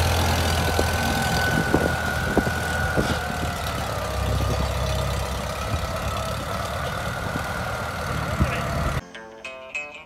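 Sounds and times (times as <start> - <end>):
tractor engine running slowly: 0.0 - 9.0.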